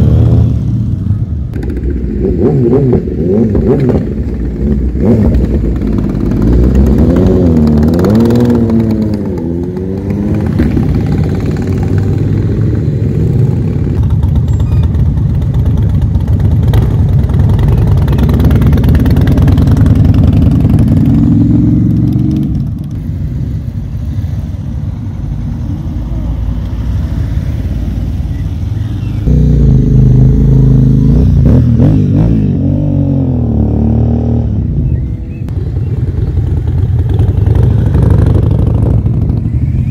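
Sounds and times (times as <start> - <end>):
cruiser motorcycle rumble: 0.0 - 39.9
motorcycles riding past: 0.0 - 39.9
sport bike engine revving: 1.6 - 14.4.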